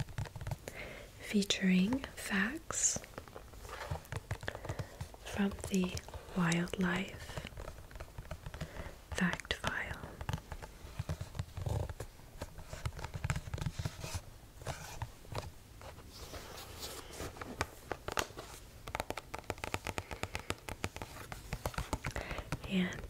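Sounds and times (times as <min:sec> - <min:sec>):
fingers tapping on glossy cover: 0:00.0 - 0:00.7, 0:04.0 - 0:12.0, 0:18.8 - 0:23.0.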